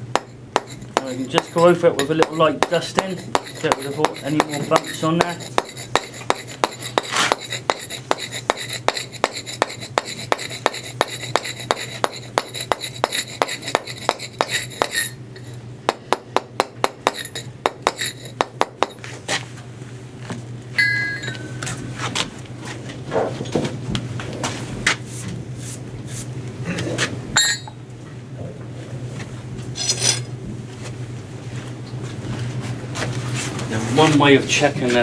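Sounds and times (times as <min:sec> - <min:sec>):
mallet tapping chisel on stone: 0:00.1 - 0:15.1, 0:15.9 - 0:19.0
scattered knocks: 0:00.2 - 0:07.9.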